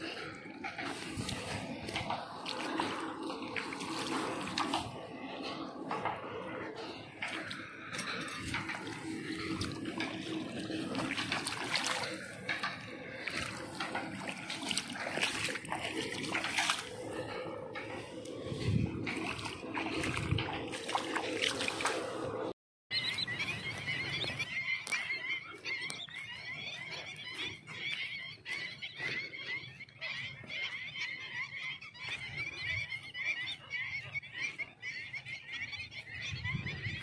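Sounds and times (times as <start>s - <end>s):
low rumble: 0.0s - 22.5s
flock of birds calling: 0.0s - 37.0s
hands splashing in shallow water: 7.3s - 17.4s, 18.0s - 22.2s.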